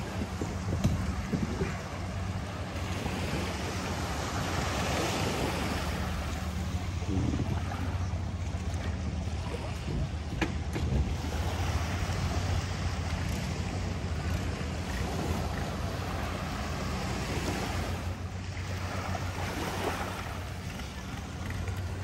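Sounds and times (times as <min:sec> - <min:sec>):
wind noise on microphone: 0:00.0 - 0:06.1, 0:06.7 - 0:08.0, 0:09.4 - 0:16.2
waves washing ashore: 0:00.0 - 0:22.0.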